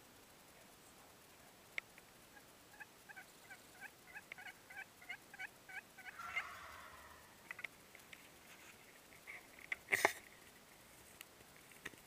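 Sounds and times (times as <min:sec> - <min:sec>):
turkey gobble: 0:02.2 - 0:07.7
turkey yelping: 0:02.3 - 0:07.6.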